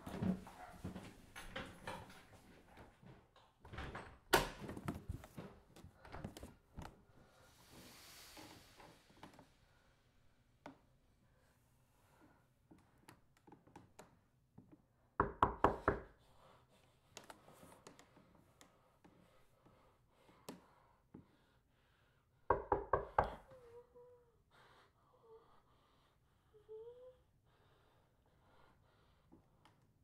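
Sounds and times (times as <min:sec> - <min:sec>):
knocking on wooden door: 0:15.2 - 0:16.1, 0:22.5 - 0:23.4
faint whimpers: 0:23.4 - 0:27.4.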